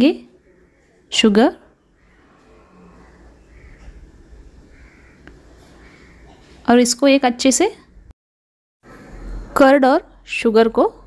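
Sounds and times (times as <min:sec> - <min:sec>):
low background hum: 0:00.0 - 0:08.1.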